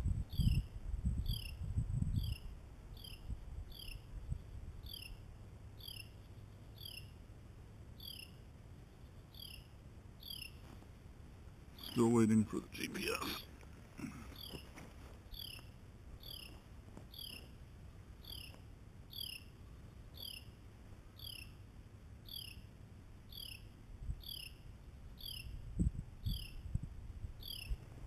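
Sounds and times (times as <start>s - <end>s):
faint high chirp: 0.3s - 5.2s, 5.8s - 7.2s, 8.0s - 10.8s, 11.7s - 12.3s, 15.3s - 17.6s, 18.2s - 21.6s, 22.2s - 22.7s, 23.3s - 26.7s, 27.4s - 27.8s.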